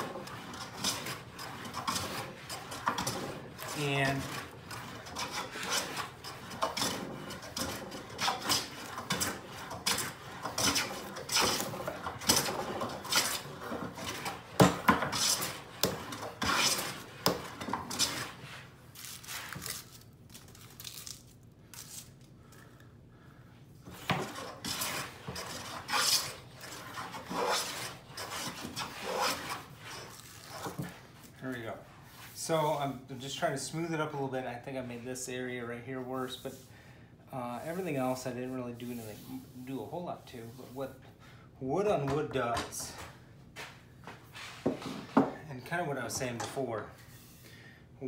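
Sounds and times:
hand plane cutting shavings: 0:00.0 - 0:18.4, 0:24.1 - 0:30.7.

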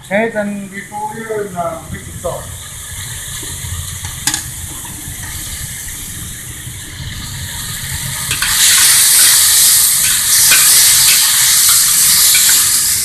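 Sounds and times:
stir-fry sizzling in wok: 0:02.0 - 0:13.0
metal ladle scraping wok: 0:08.2 - 0:13.0.

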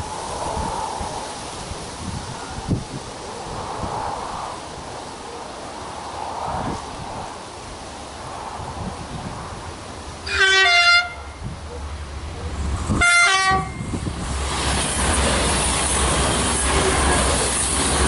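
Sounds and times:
train passing with wheel noise: 0:00.0 - 0:18.0
train horn blasts: 0:10.2 - 0:11.4, 0:13.0 - 0:13.9.

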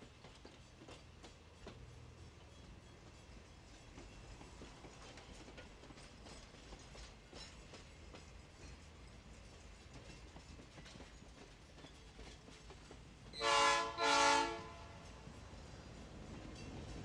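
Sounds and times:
train cars clattering on rails: 0:00.0 - 0:17.0
locomotive air horn blasts: 0:13.4 - 0:15.1.

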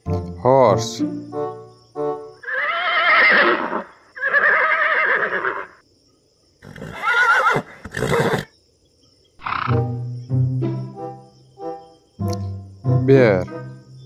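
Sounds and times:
horse whinnying: 0:02.4 - 0:05.8, 0:06.6 - 0:08.5, 0:09.4 - 0:09.8.

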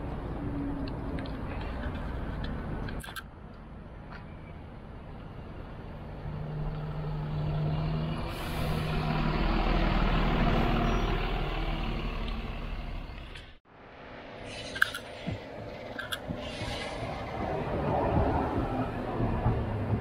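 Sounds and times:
bus driving past: 0:04.2 - 0:20.0.

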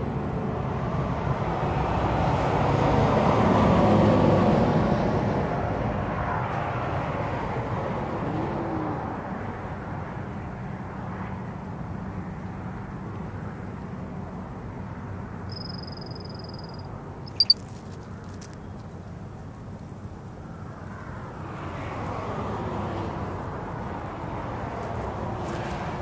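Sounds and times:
low rumble of road noise: 0:00.0 - 0:26.0
high thin whistle-like call: 0:15.5 - 0:17.6
vehicle passing: 0:21.4 - 0:26.0.

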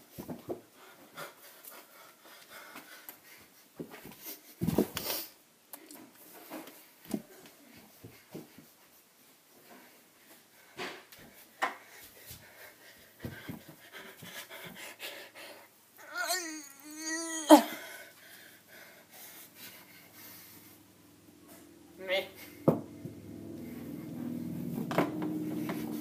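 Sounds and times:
wavering pitched cry: 0:16.0 - 0:17.8.

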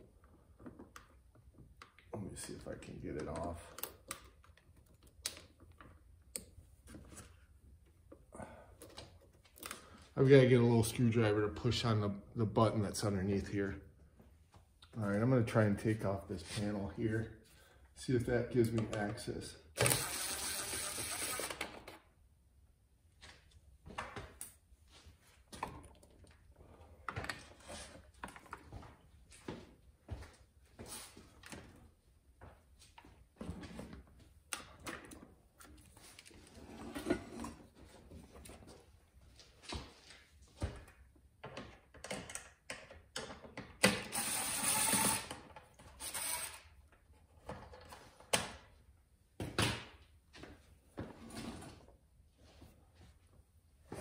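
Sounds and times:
tool and panel clicks and rattles: 0:41.5 - 0:44.3.

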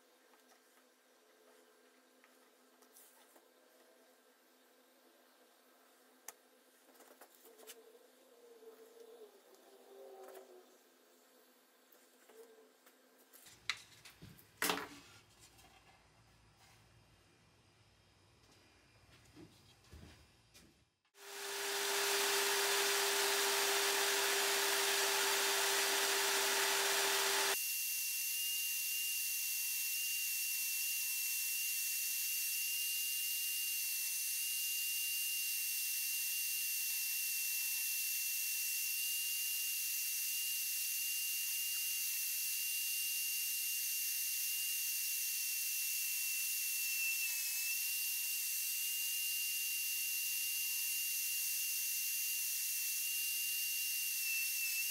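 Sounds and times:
bandsaw whining and cutting wood: 0:21.2 - 0:28.8, 0:41.3 - 0:54.9.

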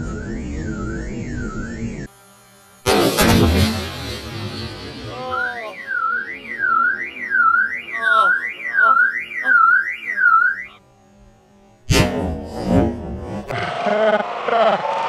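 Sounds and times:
warbling alarm tone: 0:00.0 - 0:13.8
explosion: 0:02.9 - 0:05.3.

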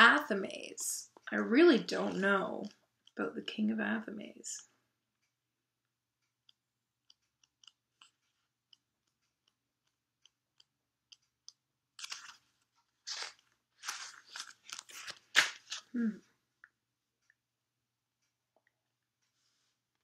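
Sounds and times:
book pages rustling: 0:12.0 - 0:16.0.

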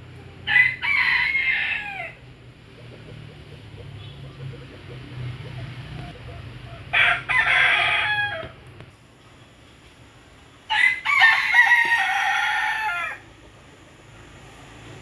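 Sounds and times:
rooster crowing: 0:00.4 - 0:02.2, 0:06.9 - 0:08.6, 0:10.7 - 0:13.3.

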